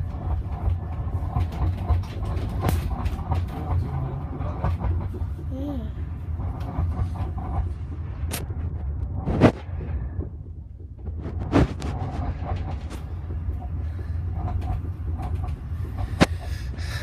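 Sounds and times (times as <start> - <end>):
clicks and rattles: 0.0 - 5.5, 10.2 - 16.8
vehicle cabin low rumble: 0.0 - 17.0.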